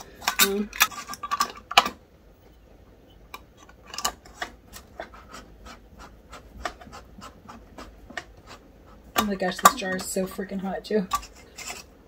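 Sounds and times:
metal lids clicking on glass jars: 0.0 - 2.0.

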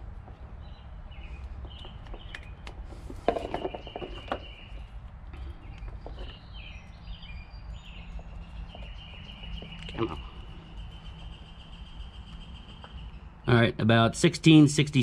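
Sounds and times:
bird chirps: 3.4 - 13.5.

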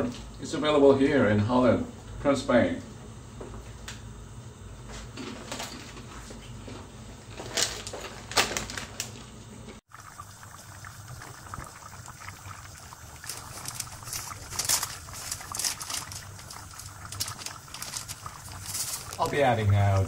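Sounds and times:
soup bubbling and popping: 9.8 - 20.0.

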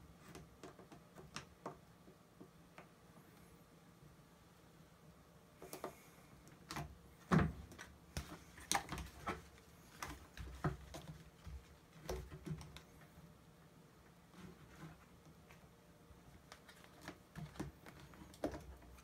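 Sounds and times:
plastic being handled: 6.7 - 13.1, 14.3 - 19.0.

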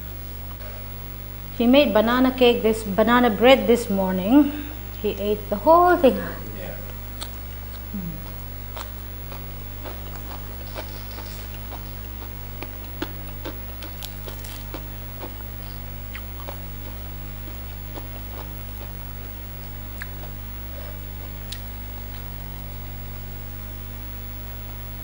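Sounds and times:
low steady hum: 0.0 - 25.0
fingers tearing fried food: 7.2 - 15.5
chewing and mouth clicks: 7.2 - 22.3.

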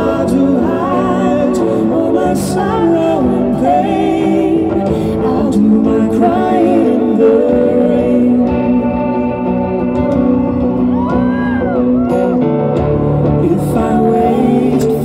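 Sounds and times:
duet vocals: 0.0 - 15.0
guitar: 0.0 - 15.0.

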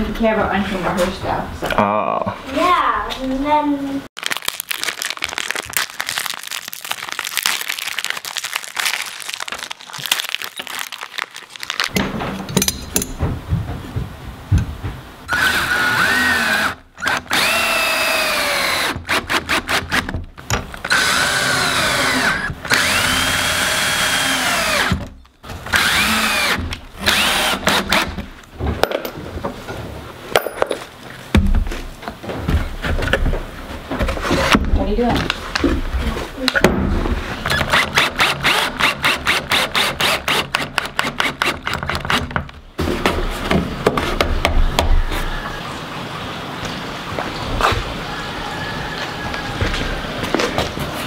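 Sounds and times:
cordless drill driving screws: 15.3 - 20.2, 20.9 - 25.1, 25.7 - 28.1, 37.5 - 41.8.

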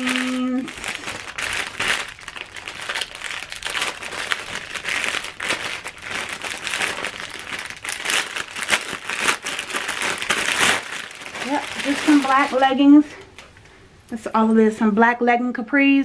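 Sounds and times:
plastic packaging crinkling: 0.0 - 13.6.

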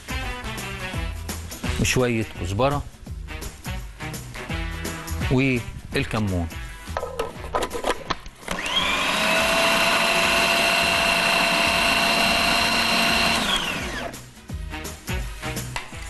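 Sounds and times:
electric blender whining: 8.4 - 14.2.

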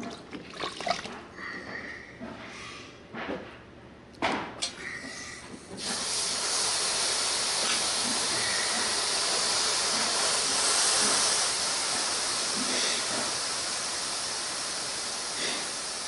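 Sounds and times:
steam hissing from iron: 4.8 - 16.0.

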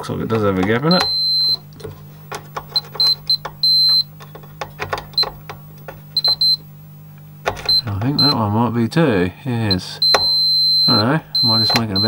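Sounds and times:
test probes scraping and clicking: 0.0 - 8.4, 9.7 - 12.0
steady low hum: 0.0 - 12.0
multimeter beeping: 0.6 - 6.7, 7.4 - 8.4, 9.7 - 12.0.

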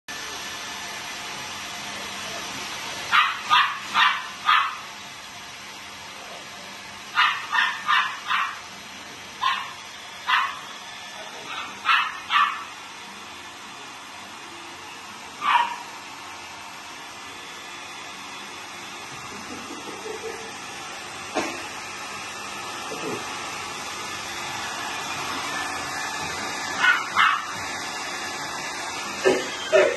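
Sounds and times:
puppy yipping and barking: 3.1 - 4.8, 7.2 - 8.6, 9.4 - 10.6, 11.5 - 12.7, 15.4 - 15.8, 26.8 - 27.5.

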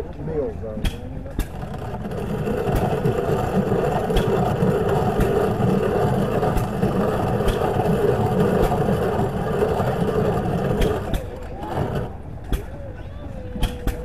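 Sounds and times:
corn grinder crunching: 1.4 - 12.2.

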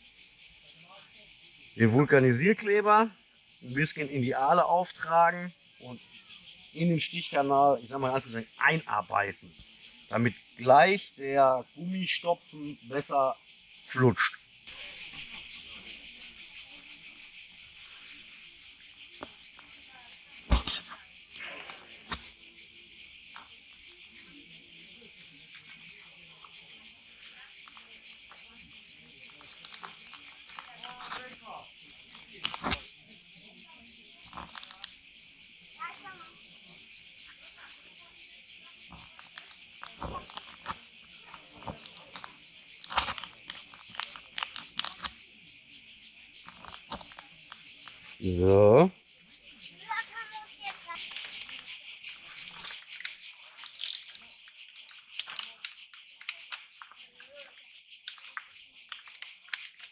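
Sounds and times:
insects chirring: 0.0 - 59.9
awl clicking and scraping in tyre: 27.5 - 33.0, 34.2 - 35.0, 38.7 - 45.3, 46.4 - 48.2, 50.0 - 57.3, 58.0 - 59.9.

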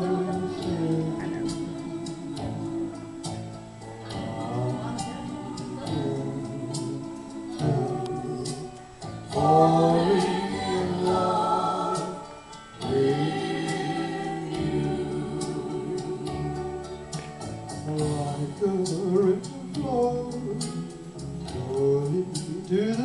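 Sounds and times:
man singing into a microphone: 0.0 - 2.9, 3.8 - 12.2, 17.8 - 23.0
backing track: 0.0 - 23.0
choir-like backing vocals: 0.0 - 23.0.

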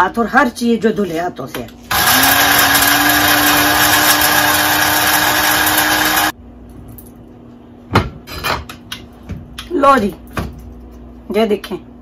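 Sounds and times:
electric spice grinder whining: 1.9 - 6.4.

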